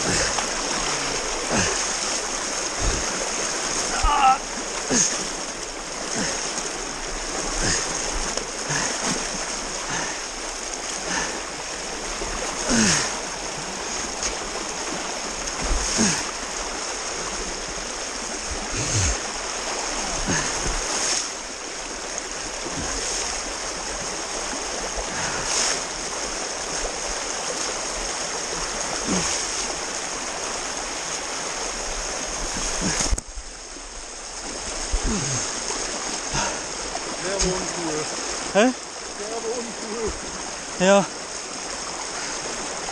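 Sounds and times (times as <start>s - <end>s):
splashes of legs wading: 0.0s - 33.3s
river rushing: 0.0s - 42.9s.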